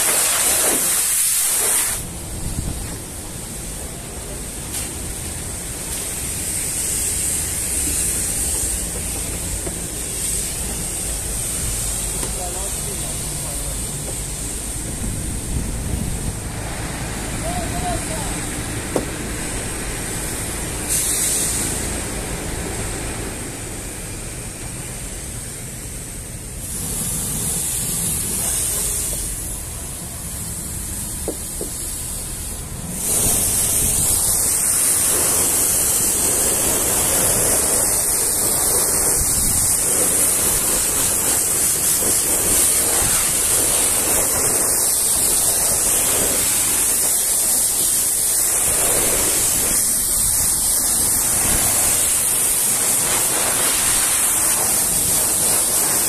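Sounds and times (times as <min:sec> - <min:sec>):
pressure washer jet spraying: 0:00.0 - 0:25.3, 0:26.4 - 0:56.0.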